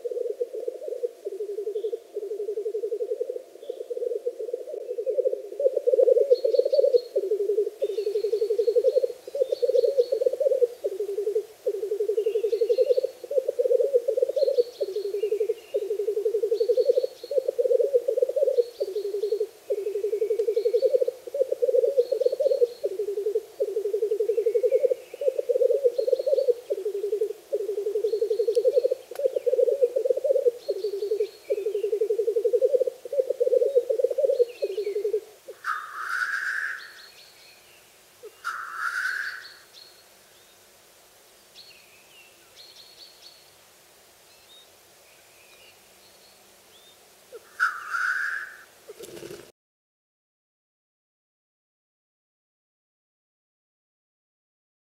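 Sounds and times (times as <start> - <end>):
black grouse bubbling song: 0.0 - 37.0
grouse hissing calls: 0.0 - 37.0, 38.2 - 39.7, 47.3 - 49.5
small birds chirping: 3.6 - 40.6.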